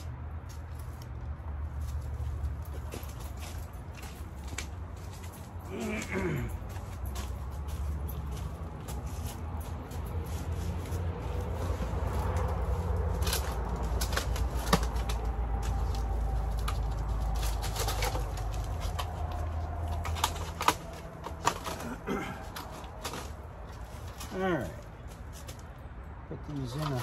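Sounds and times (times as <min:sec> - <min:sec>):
plastic trays clicking and crinkling: 0:11.7 - 0:24.3.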